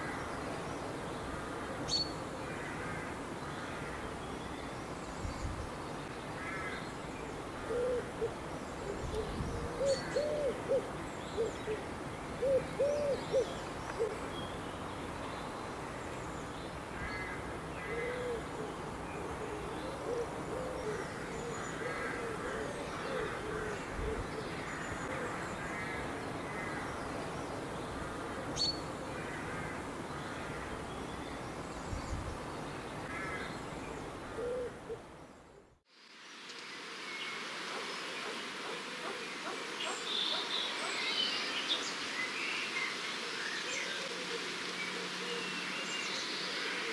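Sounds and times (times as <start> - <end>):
bird cooing: 7.6 - 11.8, 12.4 - 14.2, 17.9 - 25.4, 34.4 - 35.0, 43.8 - 45.6.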